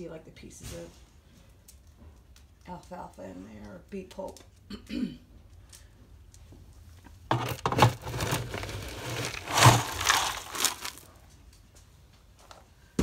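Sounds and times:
scoop crunching into feed pellets: 0:07.4 - 0:11.1.

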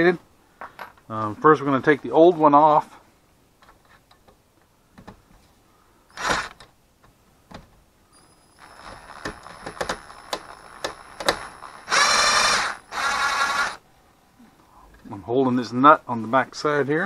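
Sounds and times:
cordless driver whirring: 0:06.2 - 0:06.6, 0:08.6 - 0:13.8.

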